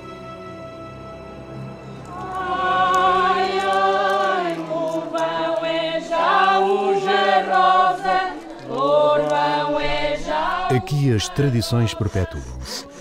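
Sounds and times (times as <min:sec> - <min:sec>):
slow choral singing: 0:00.0 - 0:13.0.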